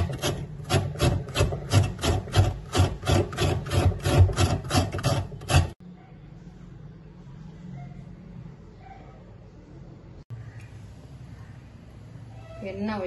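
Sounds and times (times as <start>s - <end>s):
papaya being grated: 0.0s - 5.8s.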